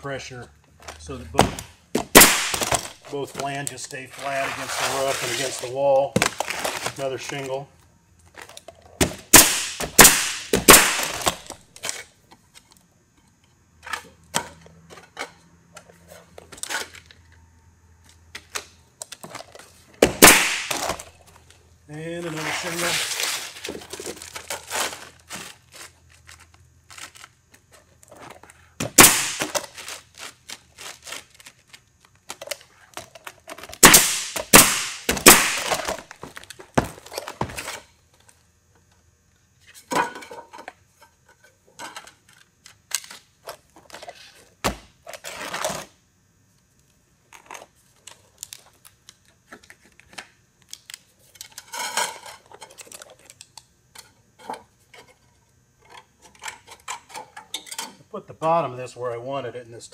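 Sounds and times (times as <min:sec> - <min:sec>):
pneumatic nailer firing: 0:01.4 - 0:03.0, 0:09.0 - 0:11.6, 0:20.0 - 0:21.1, 0:28.8 - 0:29.8, 0:33.8 - 0:36.1
shingles scraping and rustling: 0:02.6 - 0:07.5, 0:22.1 - 0:28.5.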